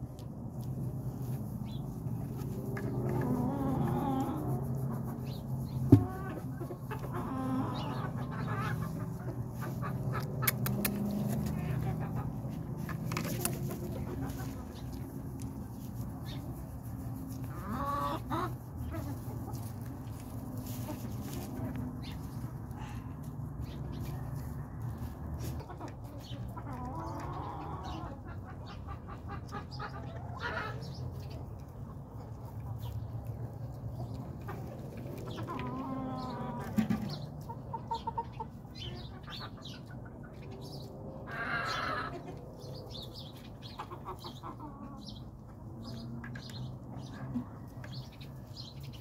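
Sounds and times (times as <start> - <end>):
chickens clucking: 0.0 - 49.0
chicken drawn-out call: 2.5 - 5.3, 5.9 - 14.6, 35.3 - 38.2, 41.2 - 42.4
small birds chirping: 42.6 - 49.0.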